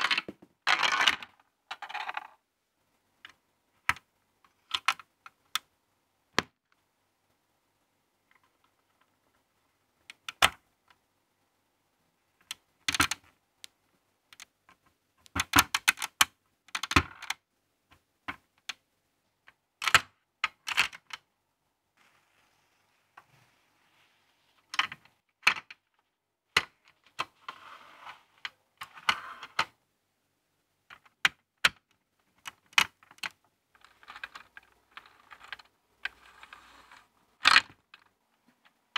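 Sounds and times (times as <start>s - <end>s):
plastic parts clicking and snapping: 3.2s - 5.7s, 12.4s - 13.3s, 14.3s - 18.8s, 30.9s - 36.2s.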